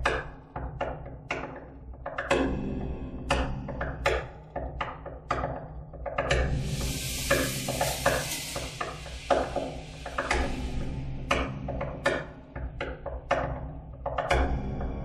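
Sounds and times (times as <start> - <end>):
hissing rush: 6.7 - 10.3.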